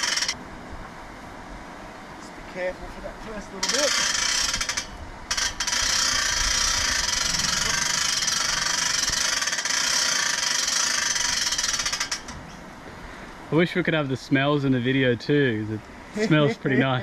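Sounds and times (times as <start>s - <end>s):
winch whirring: 0.0s - 0.4s, 3.5s - 12.7s.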